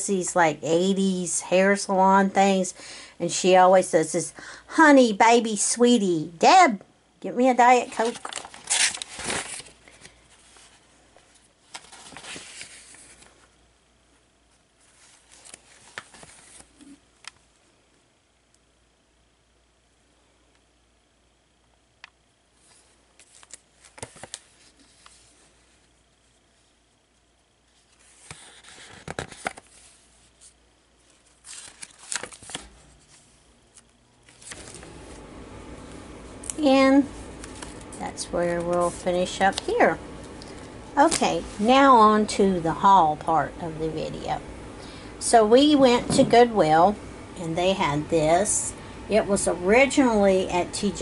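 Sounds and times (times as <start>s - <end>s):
paper pages rustling and sliding: 7.8s - 13.6s, 14.8s - 17.0s, 22.6s - 25.9s, 27.7s - 41.8s.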